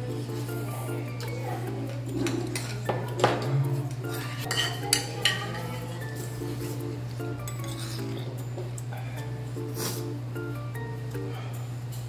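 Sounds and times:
metal cutlery clinking on bowls: 1.2s - 6.8s, 7.4s - 8.9s.

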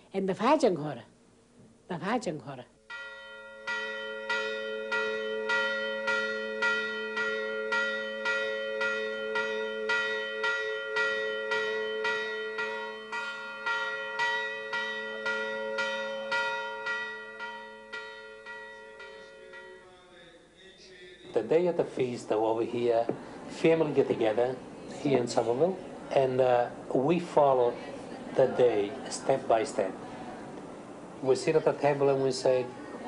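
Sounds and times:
church bell ringing: 2.9s - 20.4s.

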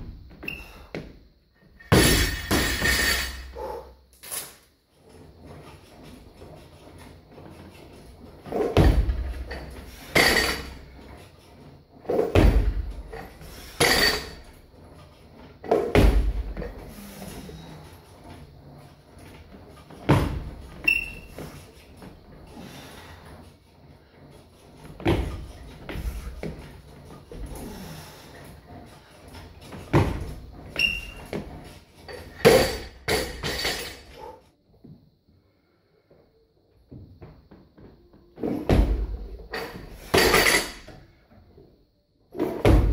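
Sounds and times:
barbell dropped on floor: 1.8s - 3.5s, 13.8s - 14.4s, 32.2s - 34.1s, 38.5s - 40.9s
bar and plates clanking: 1.8s - 3.6s, 8.6s - 11.0s, 12.1s - 14.6s, 32.1s - 34.3s, 39.5s - 40.9s
heavy barbell thuds: 1.9s - 3.5s, 12.2s - 13.0s, 15.8s - 16.6s
feet stamping thud: 12.3s - 13.0s, 15.8s - 16.6s, 20.0s - 20.6s, 25.0s - 26.6s, 29.9s - 30.6s, 42.6s - 42.9s.

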